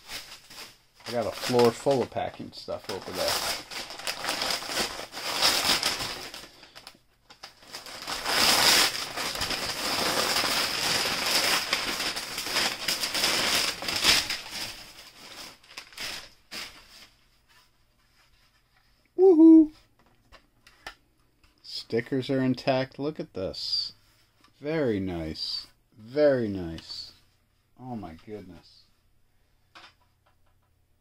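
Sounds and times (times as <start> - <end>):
packing paper rustling: 0.0 - 18.6.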